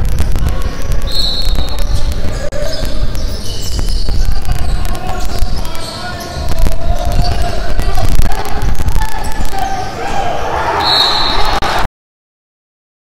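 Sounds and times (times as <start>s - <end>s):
sneaker squeaks: 0.0s - 7.6s.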